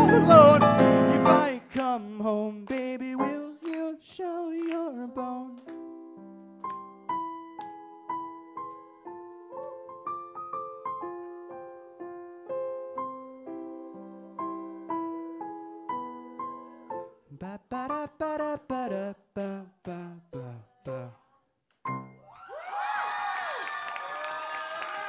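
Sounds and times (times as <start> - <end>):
keyboard playing piano sound: 0.0 - 2.0, 3.0 - 4.0, 4.6 - 17.2, 21.9 - 22.3.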